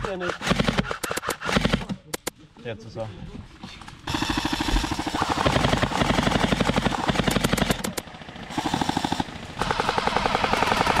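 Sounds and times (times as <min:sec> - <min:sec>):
airsoft guns firing full-auto: 0:00.2 - 0:01.9, 0:04.1 - 0:11.0.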